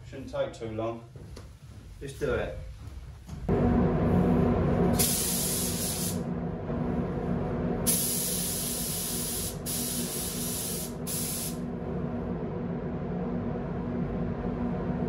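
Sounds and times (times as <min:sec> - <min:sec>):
air system humming: 0:00.0 - 0:15.0
spray gun hissing: 0:05.0 - 0:06.2, 0:07.9 - 0:11.6.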